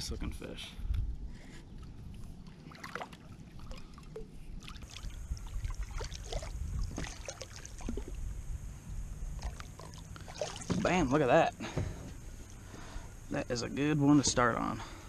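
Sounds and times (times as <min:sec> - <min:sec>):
steady low rumble: 0:00.0 - 0:15.0
fish splashing at surface: 0:09.4 - 0:11.0.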